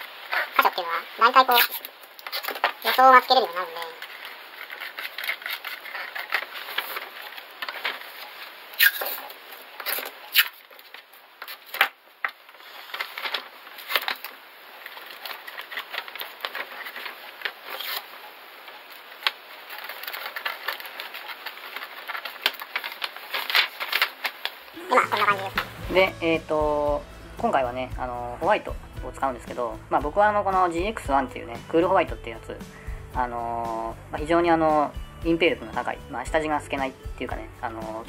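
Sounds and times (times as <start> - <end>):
masking tape and paper crinkling: 0.0 - 26.5.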